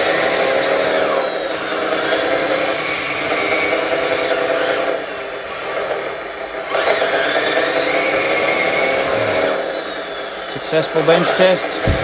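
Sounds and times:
hydraulic pump whining: 0:00.0 - 0:12.0.

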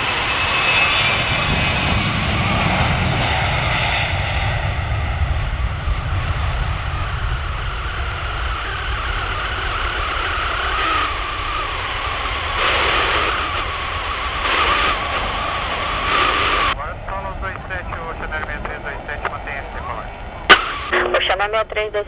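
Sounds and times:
jet engines rumbling and whining: 0:00.0 - 0:22.0.

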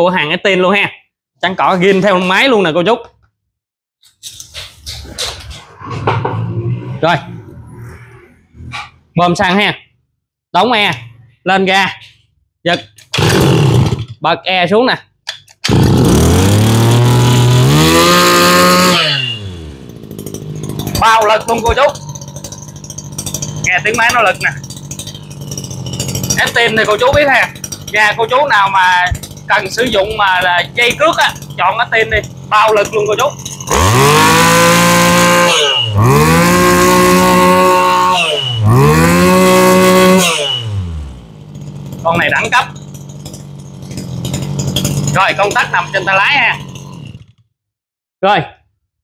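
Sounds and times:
brush cutter engine revving: 0:13.0 - 0:14.2, 0:15.6 - 0:47.4
short high squeal: 0:35.6 - 0:36.0.

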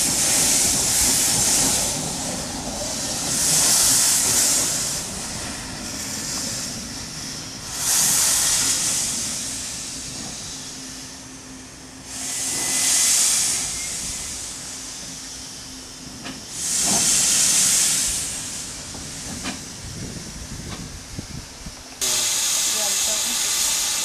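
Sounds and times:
soft steam hiss: 0:00.0 - 0:24.0
steam locomotive hissing bursts: 0:00.0 - 0:24.0.

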